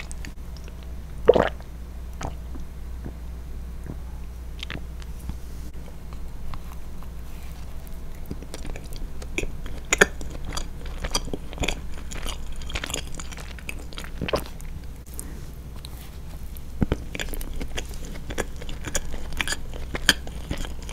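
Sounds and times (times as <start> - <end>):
chewing and biting cake: 4.6 - 20.9.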